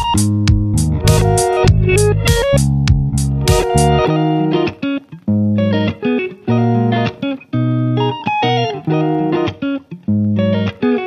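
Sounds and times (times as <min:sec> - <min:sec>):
upbeat guitar instrumental: 0:00.0 - 0:11.0.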